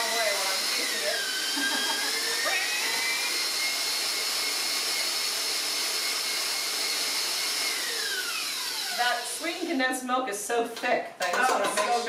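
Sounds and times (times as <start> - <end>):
stand mixer motor whine: 0.0 - 9.3.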